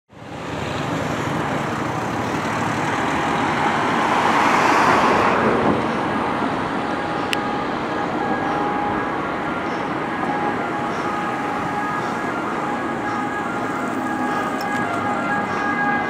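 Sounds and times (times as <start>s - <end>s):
street traffic: 0.1s - 16.0s
car passing close by: 0.3s - 6.8s.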